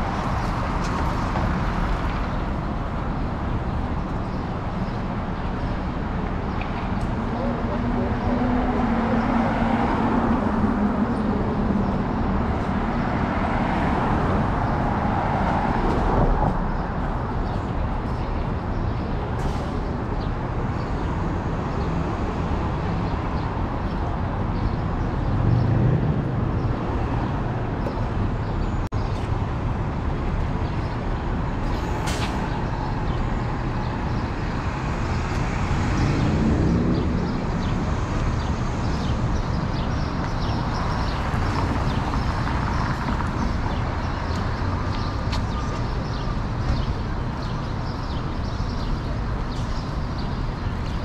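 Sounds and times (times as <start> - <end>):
traffic rumble: 0.0 - 51.0
vehicles pulling away: 29.4 - 48.3.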